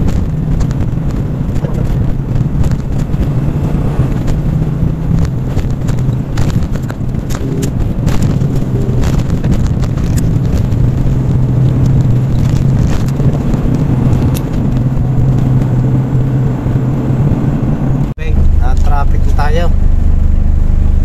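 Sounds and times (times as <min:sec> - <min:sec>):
road noise: 0:00.0 - 0:21.0
truck diesel engine running: 0:00.0 - 0:21.0.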